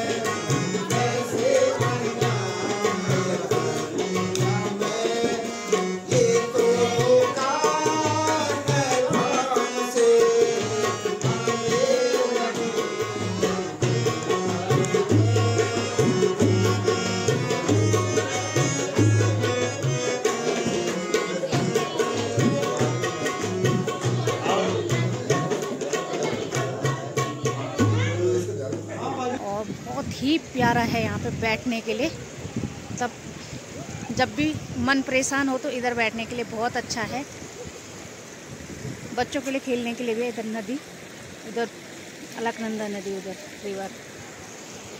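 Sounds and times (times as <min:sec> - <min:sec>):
harmonium melody: 0:00.0 - 0:28.4
tabla strokes: 0:00.0 - 0:28.9.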